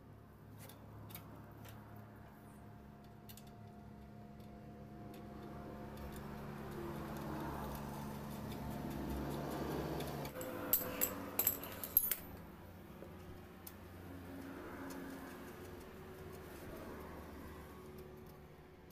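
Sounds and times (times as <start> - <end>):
light metallic clicks and clinks: 3.0 - 12.5.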